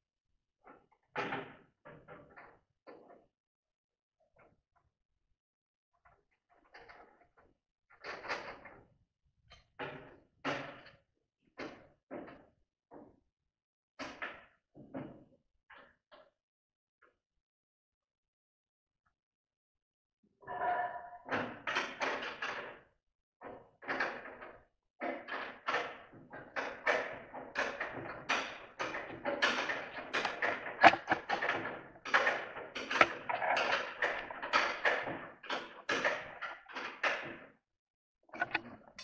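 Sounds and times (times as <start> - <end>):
sheet-steel drum rattling and knocking: 25.0 - 37.4.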